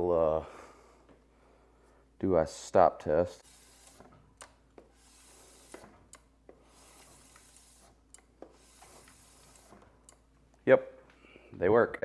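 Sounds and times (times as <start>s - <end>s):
wheel rubbing whir: 3.4s - 10.2s.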